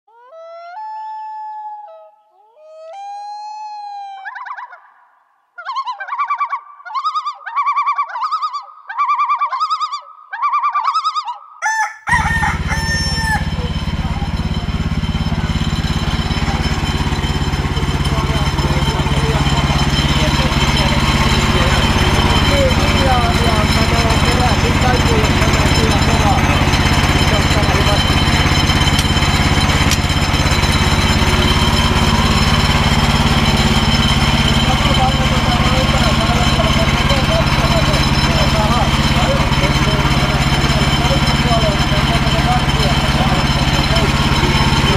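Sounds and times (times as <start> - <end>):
high warbling call: 11.6 - 37.4
small gasoline engine running: 12.1 - 44.9.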